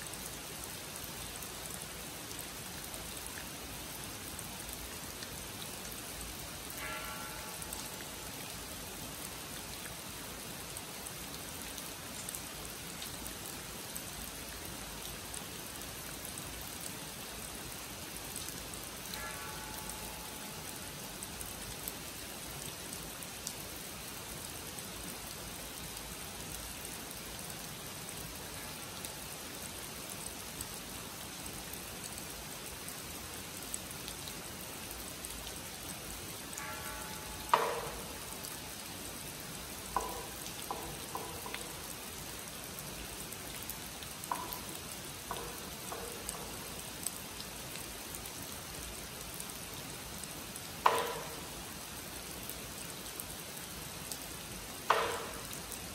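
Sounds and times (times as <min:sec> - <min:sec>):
rain falling on a pond: 0:00.0 - 0:55.9
wooden clapper strikes: 0:37.5 - 0:38.1, 0:40.0 - 0:41.6, 0:50.8 - 0:51.4, 0:54.9 - 0:55.5.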